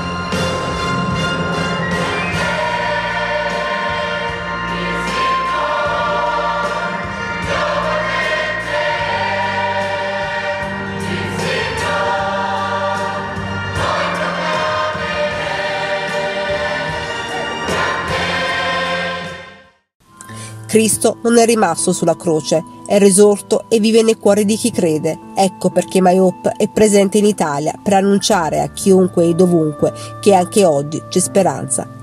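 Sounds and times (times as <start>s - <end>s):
mixed choir singing: 1.5s - 19.7s.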